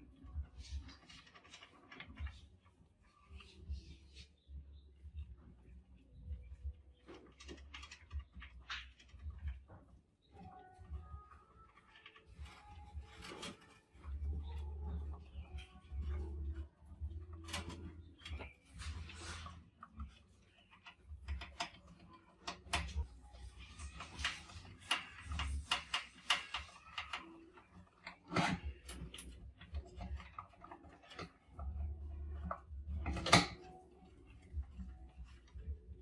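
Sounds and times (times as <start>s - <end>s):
mice scratching in a trap: 0.0s - 36.0s
claws clicking on mesh: 7.0s - 9.9s, 11.6s - 35.9s.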